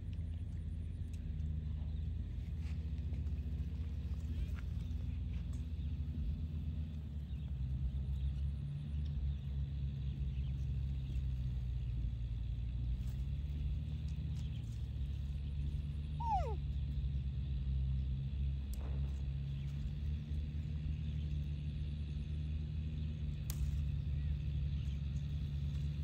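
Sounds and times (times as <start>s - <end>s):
steady low rumble: 0.0s - 26.0s
animal whine: 16.2s - 16.6s.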